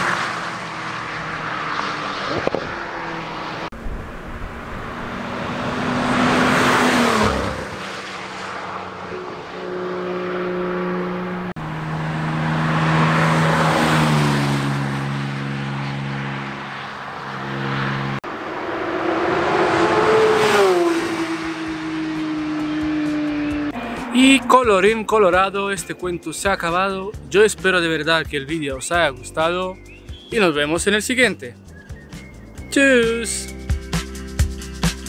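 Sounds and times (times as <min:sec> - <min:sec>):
race cars passing at speed: 0:00.0 - 0:28.0.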